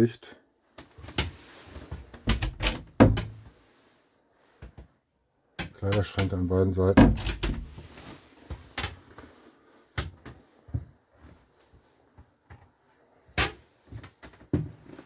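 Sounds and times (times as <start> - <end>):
wooden wardrobe doors knocking: 2.2 - 3.4, 7.0 - 7.8.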